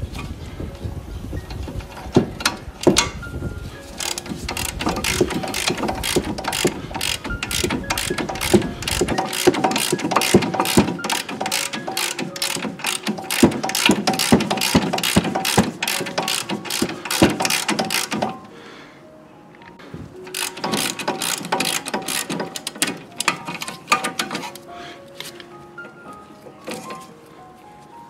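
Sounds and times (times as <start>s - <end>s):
ratchet wrench clicking: 1.9s - 3.3s, 4.0s - 18.5s, 20.3s - 24.6s.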